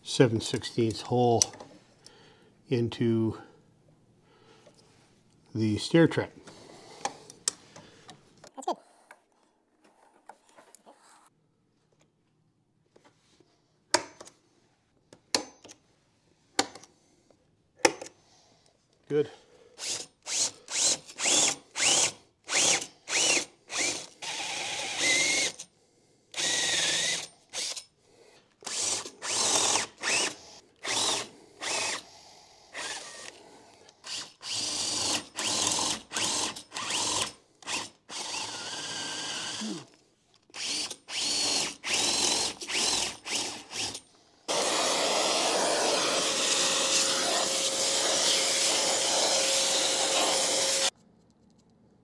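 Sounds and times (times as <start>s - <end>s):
cordless drill boring wood: 19.8s - 25.7s, 26.3s - 27.8s, 28.6s - 33.4s, 34.0s - 39.9s, 40.5s - 50.9s
vacuum running: 44.5s - 50.9s.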